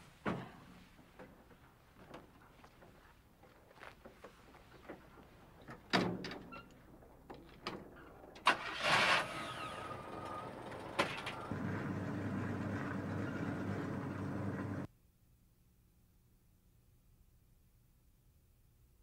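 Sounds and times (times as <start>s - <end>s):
truck engine cranking and running: 7.4s - 14.9s.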